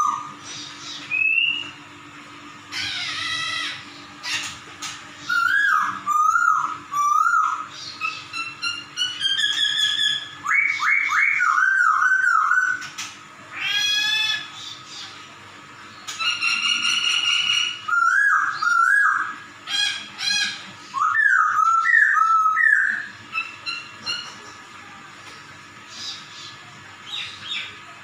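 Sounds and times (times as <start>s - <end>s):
bird whistled song: 0.0s - 1.8s, 5.2s - 13.0s, 15.9s - 24.4s.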